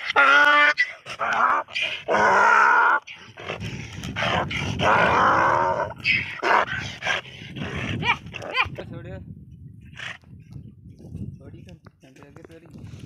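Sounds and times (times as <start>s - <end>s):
donkeys screaming: 0.0s - 3.6s, 4.2s - 7.0s.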